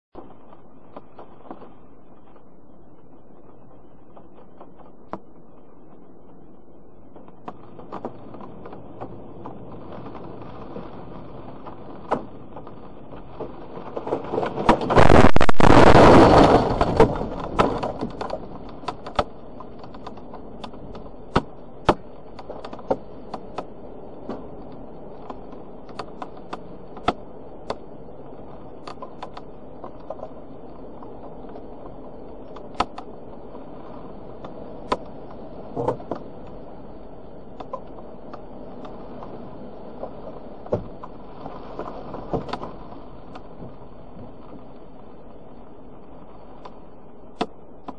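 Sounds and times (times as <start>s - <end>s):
storm noise: 0.1s - 47.9s
tree crashing onto van: 13.9s - 18.4s.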